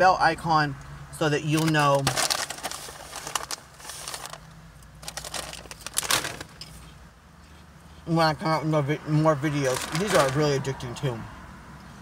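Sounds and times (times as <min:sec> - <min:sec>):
crunching of snacks: 0:01.5 - 0:06.6, 0:09.7 - 0:10.4
foil snack bag crinkling: 0:01.5 - 0:06.7, 0:09.6 - 0:10.4.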